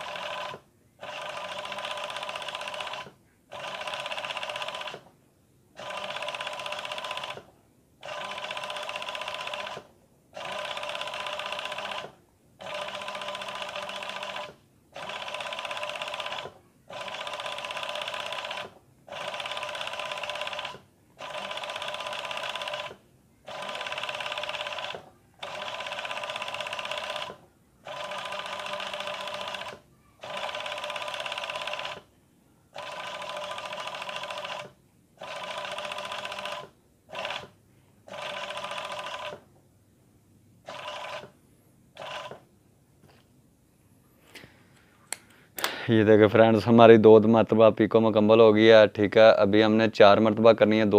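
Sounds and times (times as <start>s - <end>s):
sewing machine stitching: 0.0s - 5.1s, 5.8s - 32.1s, 32.8s - 37.5s, 38.1s - 39.4s, 40.7s - 41.3s, 42.0s - 42.4s.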